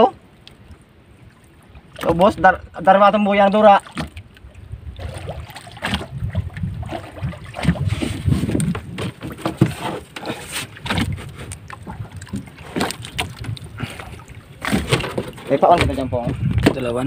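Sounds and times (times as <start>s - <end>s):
water lapping against wooden boat: 0.0s - 17.0s
wind on microphone: 4.1s - 10.0s, 10.6s - 17.0s
knocks and handling noises: 8.1s - 11.1s, 14.6s - 16.8s.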